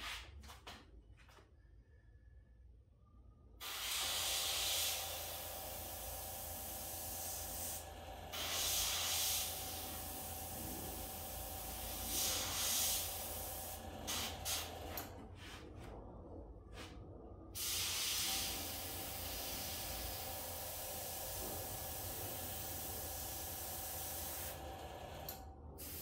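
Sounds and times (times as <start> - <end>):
short air puffs: 3.6 - 5.4, 8.4 - 10.4, 11.7 - 15.6
airbrush air hiss: 3.6 - 14.8, 17.6 - 24.6, 25.8 - 26.0.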